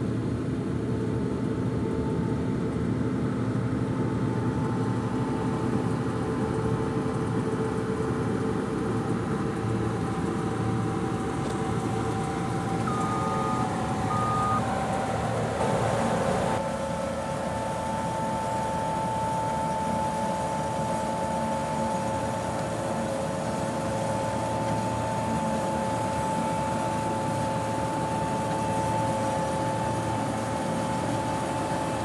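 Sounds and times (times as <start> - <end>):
combine harvester droning: 0.0 - 32.0
short electronic beeps: 12.9 - 14.6.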